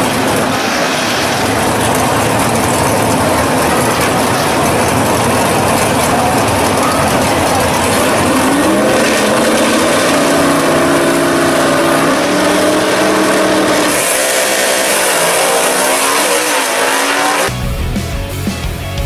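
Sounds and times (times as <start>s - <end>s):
racing car engines at full throttle: 0.0s - 17.6s
rock music: 14.8s - 19.0s.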